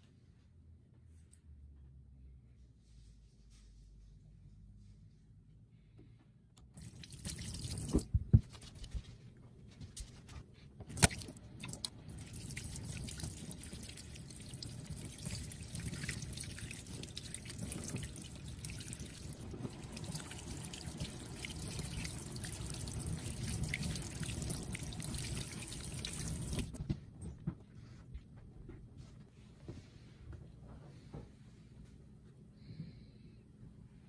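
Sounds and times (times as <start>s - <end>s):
tap water running into sink: 10.9s - 26.8s.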